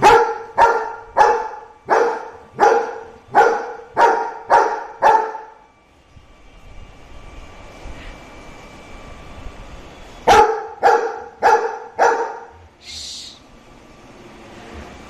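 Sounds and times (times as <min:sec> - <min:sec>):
dog barking: 0:00.0 - 0:05.6, 0:10.3 - 0:12.6.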